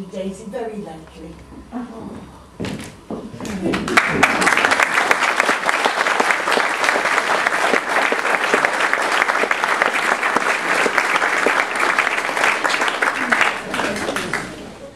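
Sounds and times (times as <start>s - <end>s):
audience applauding: 3.5s - 14.9s.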